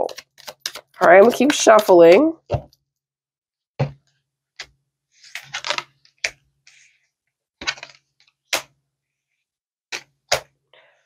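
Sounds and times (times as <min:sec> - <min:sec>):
playing cards being shuffled: 0:00.0 - 0:01.6, 0:04.6 - 0:06.9, 0:07.6 - 0:08.7
card snaps and slaps: 0:08.5 - 0:08.7.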